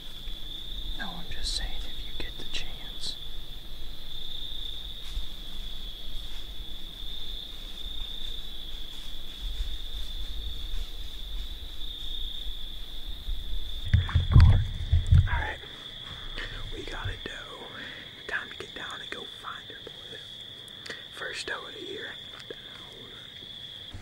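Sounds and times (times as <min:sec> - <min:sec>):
crickets trilling: 0:00.0 - 0:24.0
low rumble: 0:13.9 - 0:17.4
person speaking: 0:13.9 - 0:23.3.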